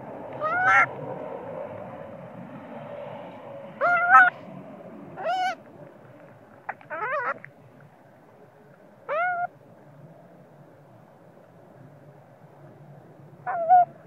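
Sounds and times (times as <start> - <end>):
baby monkey crying: 0.4 - 0.9, 3.8 - 4.3, 5.2 - 5.6, 6.9 - 7.4, 9.1 - 9.5, 13.5 - 14.0.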